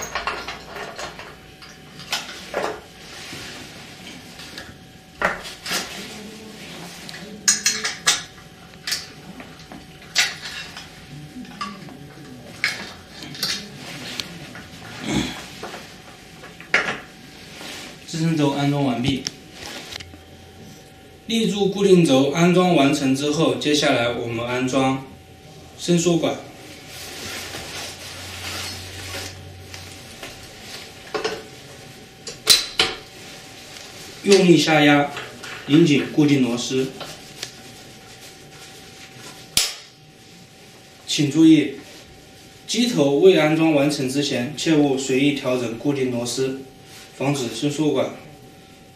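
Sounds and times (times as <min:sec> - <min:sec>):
knocks and clinks of plastic parts: 0:00.0 - 0:01.3.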